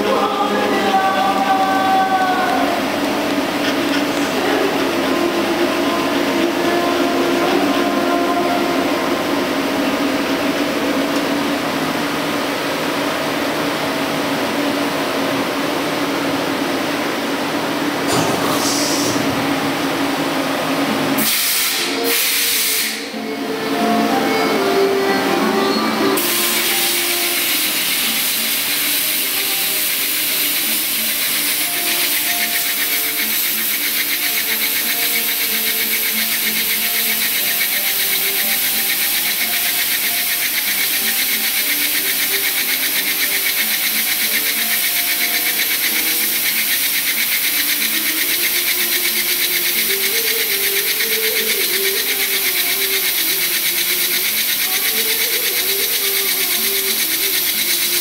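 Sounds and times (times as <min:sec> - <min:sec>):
compressed air hissing: 0:18.1 - 0:20.0, 0:21.2 - 0:23.2, 0:26.0 - 0:58.0.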